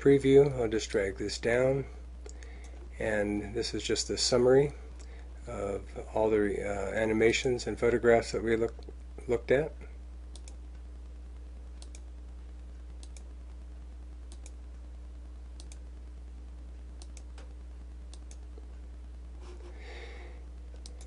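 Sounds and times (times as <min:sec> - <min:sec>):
low electrical hum: 0:00.0 - 0:21.0
computer mouse clicking: 0:10.3 - 0:10.6, 0:11.8 - 0:12.0, 0:13.0 - 0:13.3, 0:14.3 - 0:14.6, 0:15.6 - 0:15.8, 0:17.0 - 0:17.5, 0:20.8 - 0:21.0.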